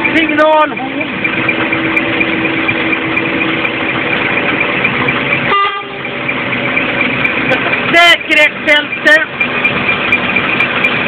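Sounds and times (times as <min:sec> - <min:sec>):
diesel truck engine idling: 0:00.0 - 0:11.0
truck horn toot: 0:05.4 - 0:06.4.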